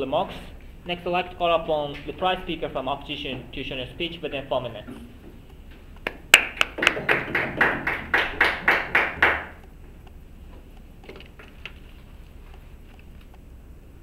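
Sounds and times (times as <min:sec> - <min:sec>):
small group clapping: 0:06.0 - 0:09.6.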